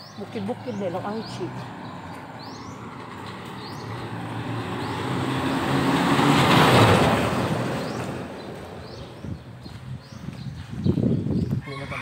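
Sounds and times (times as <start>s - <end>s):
car driving past: 0.6s - 9.2s.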